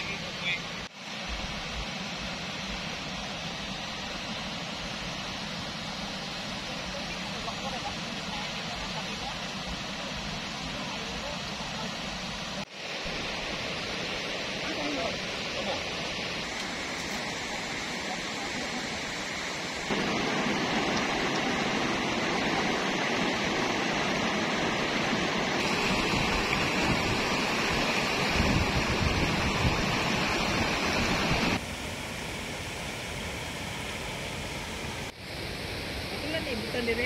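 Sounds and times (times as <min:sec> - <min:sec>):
river rapids rushing over rocks: 0:14.4 - 0:31.6.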